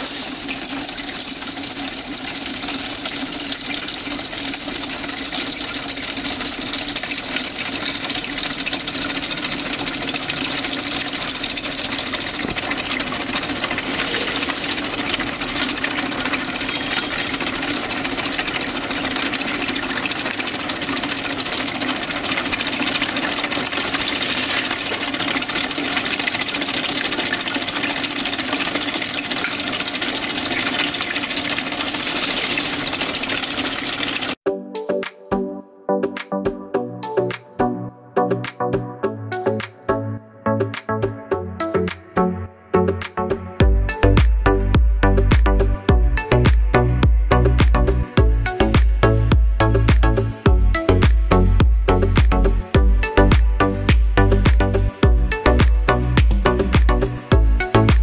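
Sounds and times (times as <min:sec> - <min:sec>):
washing machine motor hum: 0:00.0 - 0:34.4, 0:43.6 - 0:58.0
water spraying hiss: 0:13.5 - 0:15.8.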